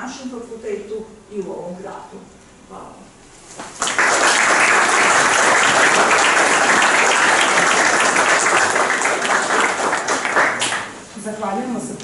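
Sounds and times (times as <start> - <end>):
audience applauding: 3.8 - 11.0.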